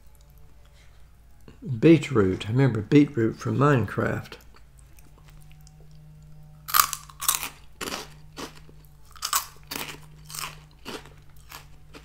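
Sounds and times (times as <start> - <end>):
faint low hum: 0.0 - 12.0
crunchy snack being chewed: 4.4 - 12.0.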